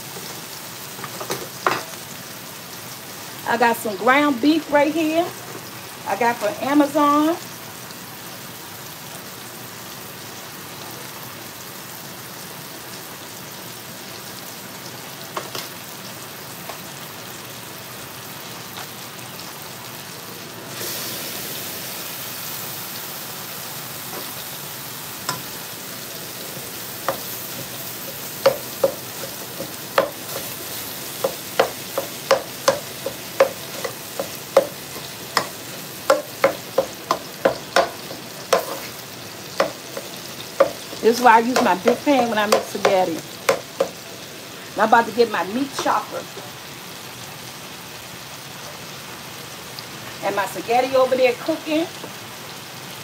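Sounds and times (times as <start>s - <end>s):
sausage sizzling in frying pan: 0.0s - 53.0s
utensil knocking against pan: 28.4s - 30.5s, 31.2s - 34.8s, 35.4s - 38.8s, 39.6s - 44.0s.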